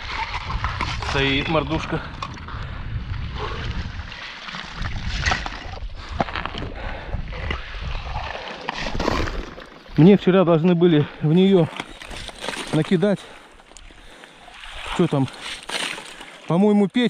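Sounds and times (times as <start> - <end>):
water sloshing and gurgling: 0.0 - 16.6.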